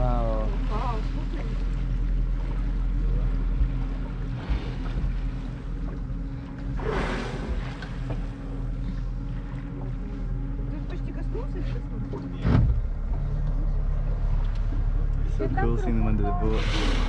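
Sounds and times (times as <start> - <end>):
light wind: 0.0 - 17.0
outboard motor idling: 0.0 - 17.0
water noise: 0.0 - 17.0.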